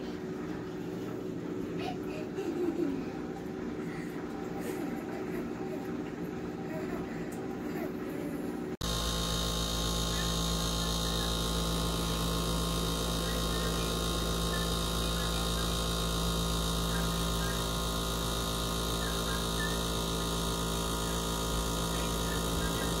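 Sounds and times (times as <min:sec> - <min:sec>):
dishwasher pump motor humming: 0:00.0 - 0:23.0.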